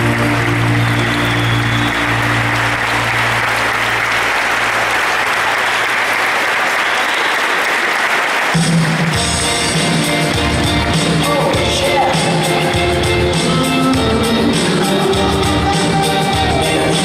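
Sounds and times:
music track: 0:00.0 - 0:05.7, 0:08.6 - 0:17.0
audience applauding: 0:00.0 - 0:17.0.

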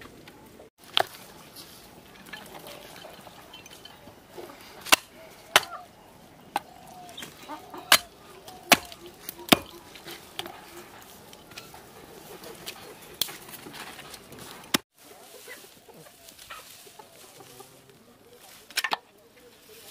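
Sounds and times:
cleaver chopping on wood block: 0:04.8 - 0:05.8, 0:07.9 - 0:10.6.

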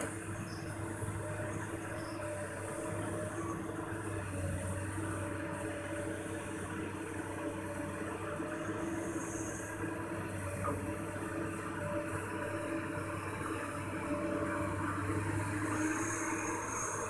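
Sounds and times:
excavator diesel engine running: 0:00.0 - 0:17.0.

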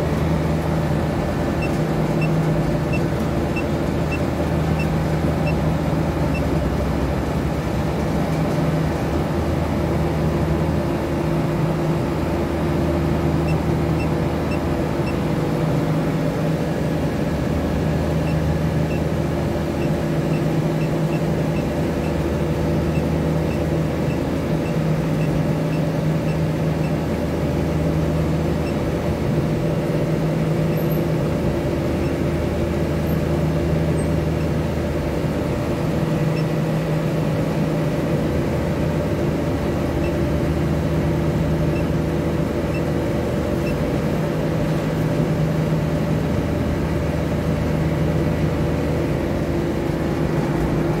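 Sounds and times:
chiller compressor and fans humming: 0:00.0 - 0:51.0.

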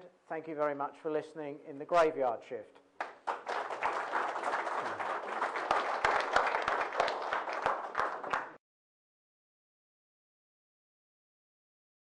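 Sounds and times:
audience applauding: 0:03.0 - 0:08.6.

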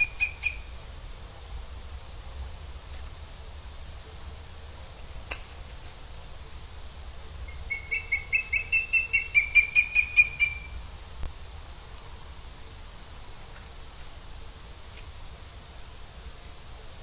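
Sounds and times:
eagle calling: 0:00.0 - 0:00.8, 0:07.5 - 0:10.8.

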